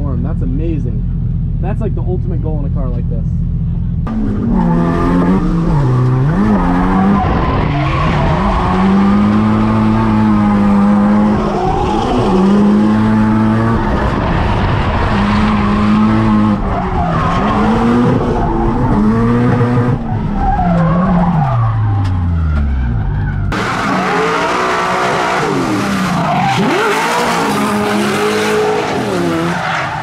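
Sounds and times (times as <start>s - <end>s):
car engine revving hard: 4.1s - 20.1s, 23.5s - 29.6s.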